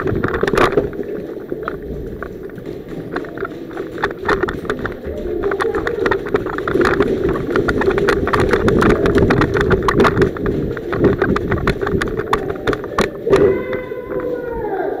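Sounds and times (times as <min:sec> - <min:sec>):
steady low rumble: 0:00.0 - 0:14.9
footsteps: 0:00.0 - 0:15.0
gear rattling: 0:00.0 - 0:15.0.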